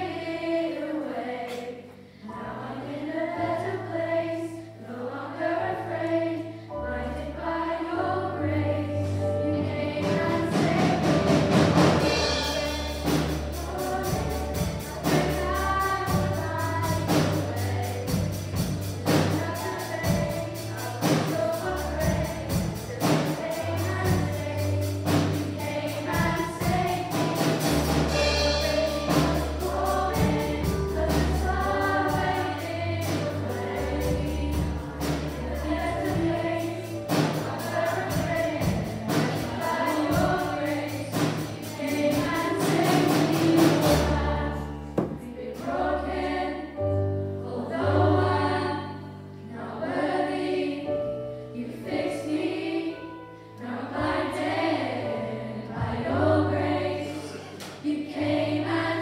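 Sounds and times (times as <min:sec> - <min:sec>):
choir singing gospel song: 0:00.0 - 0:59.0
instrumental accompaniment with beat: 0:10.2 - 0:44.4.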